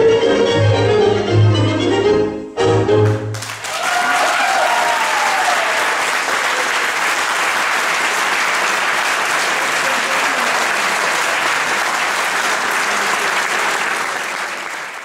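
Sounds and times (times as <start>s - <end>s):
tango music: 0.0s - 3.4s
audience applause: 3.0s - 15.0s.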